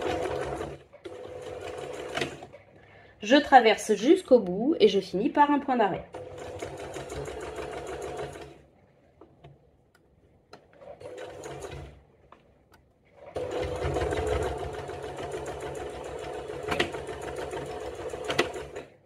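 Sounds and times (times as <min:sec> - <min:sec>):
electric sewing machine stitching: 0:00.0 - 0:02.7, 0:06.1 - 0:08.6, 0:10.8 - 0:12.0, 0:13.2 - 0:18.9.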